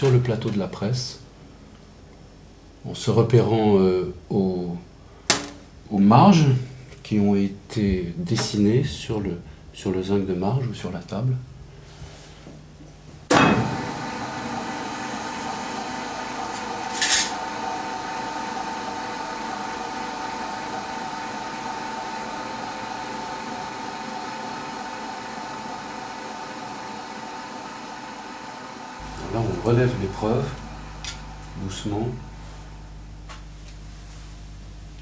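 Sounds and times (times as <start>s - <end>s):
press motor starting clunk: 13.3s - 18.7s
press motor whine: 13.3s - 33.5s.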